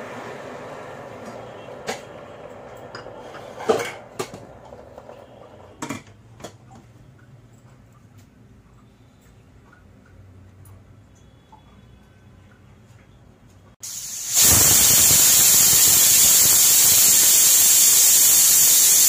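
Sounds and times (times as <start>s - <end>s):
steam hiss: 13.8s - 19.0s.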